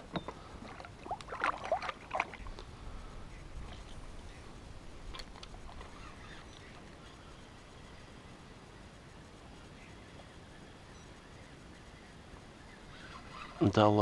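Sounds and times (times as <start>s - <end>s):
water splashing: 0.0s - 2.7s
faint water drips: 0.1s - 2.9s.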